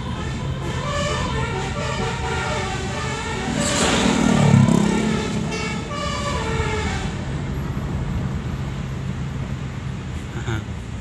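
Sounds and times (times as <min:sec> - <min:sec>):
musical air horns playing: 0:00.0 - 0:07.2
engine hum with road noise: 0:00.0 - 0:11.0
rush of noise: 0:03.4 - 0:05.5.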